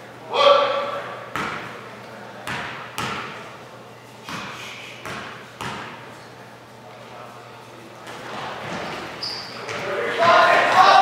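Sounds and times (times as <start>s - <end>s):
basketball bouncing on gym floor: 1.3s - 1.7s, 2.4s - 3.4s, 4.3s - 6.0s.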